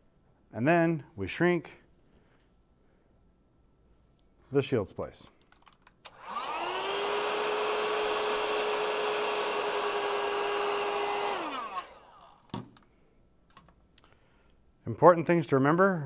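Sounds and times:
heat gun fan whining: 6.0s - 12.6s.

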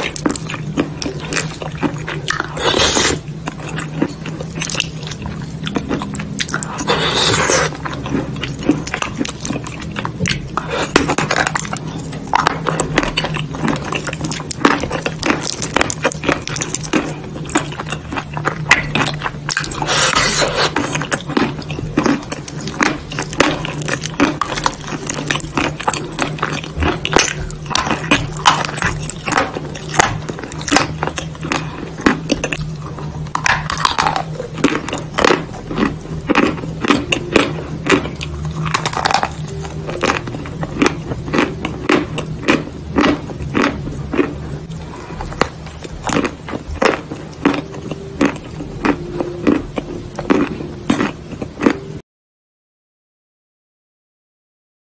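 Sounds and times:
chalk crunching when bitten: 18.7s - 20.8s.

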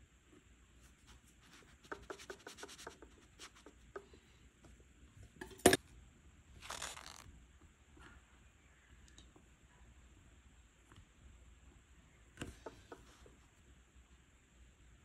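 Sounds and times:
paper rustling rub: 6.6s - 7.2s.

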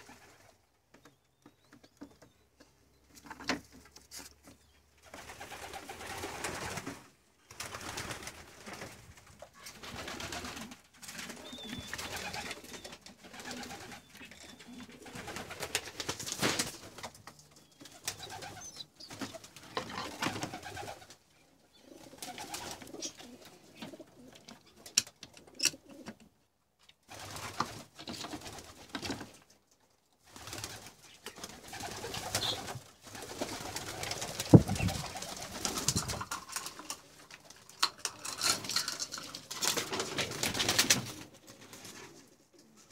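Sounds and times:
pigeons cooing: 11.2s - 15.8s, 18.0s - 24.8s
rustling: 30.3s - 42.9s.

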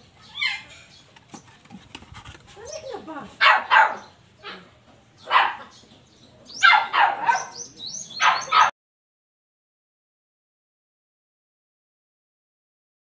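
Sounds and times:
dog barking: 3.4s - 5.8s, 6.6s - 7.6s, 8.2s - 8.7s.

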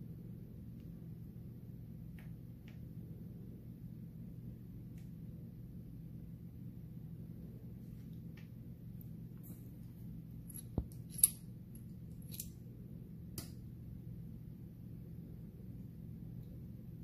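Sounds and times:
low hum: 0.0s - 17.0s
small metal pins clicking: 10.5s - 12.6s.

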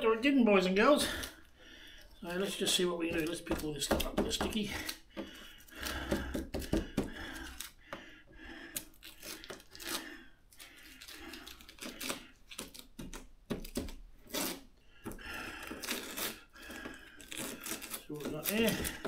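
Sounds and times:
tape peeling off plastic: 8.7s - 14.7s, 15.6s - 19.0s
short tearing sounds: 13.6s - 14.7s, 15.8s - 16.5s.

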